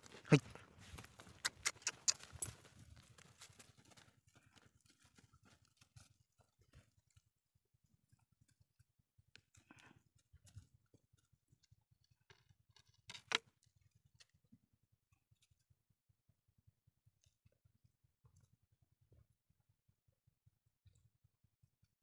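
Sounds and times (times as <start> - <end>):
faint clicks and rustles: 0.0 - 14.4.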